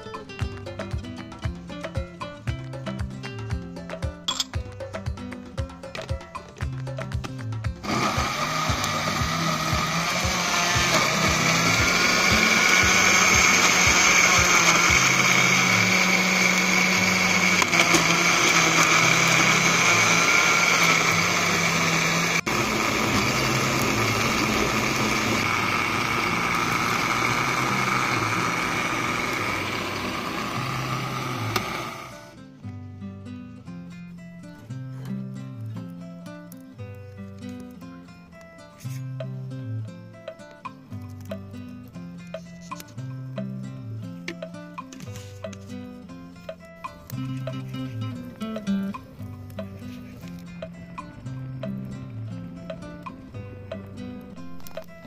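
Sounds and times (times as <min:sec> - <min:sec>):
blender running: 0:07.8 - 0:32.4.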